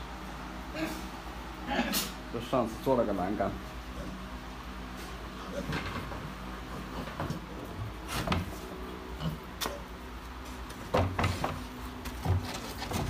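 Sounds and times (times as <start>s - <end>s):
pigs knocking and bumping: 5.6s - 8.6s, 10.7s - 13.0s.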